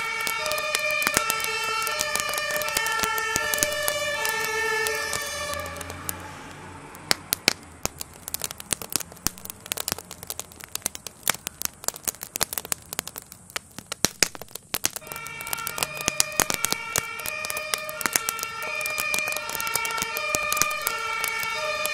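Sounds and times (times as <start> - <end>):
two-tone emergency siren: 0.0 - 6.9, 15.0 - 21.9
fire crackling and popping: 0.0 - 21.9.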